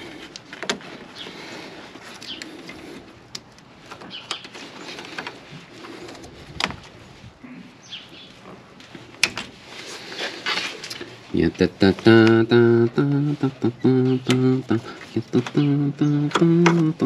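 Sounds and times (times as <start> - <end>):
handling rustle: 8.2 - 11.4.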